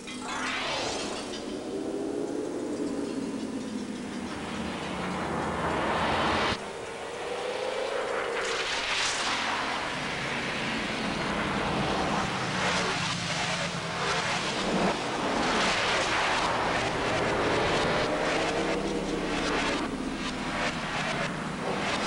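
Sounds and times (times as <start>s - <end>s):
steady low tone: 0.0s - 7.0s, 13.8s - 22.0s
electronic whooshing swells: 0.0s - 22.0s.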